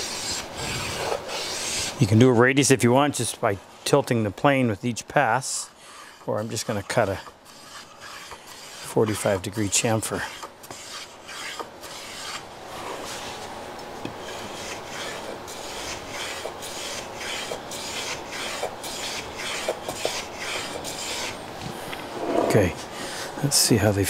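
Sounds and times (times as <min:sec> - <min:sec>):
hand plane shaving wood: 0:00.0 - 0:02.2, 0:06.0 - 0:13.5, 0:14.1 - 0:21.4.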